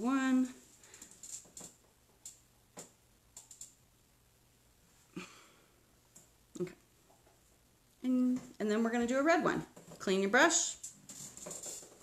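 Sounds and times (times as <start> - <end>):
faint clicks and taps: 0.8 - 3.8, 6.1 - 7.6.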